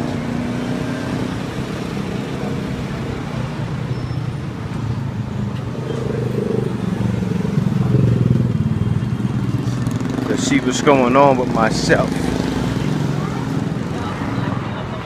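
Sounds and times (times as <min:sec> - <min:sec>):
motorcycle approaching: 0:00.0 - 0:15.0
traffic engines humming: 0:00.0 - 0:15.0.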